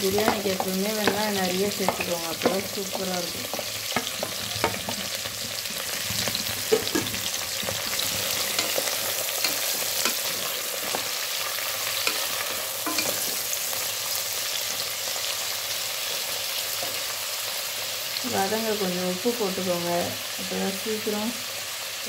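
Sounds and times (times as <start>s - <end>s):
onions sizzling in oil: 0.0s - 22.0s
wooden spatula scraping a pan: 0.1s - 11.2s.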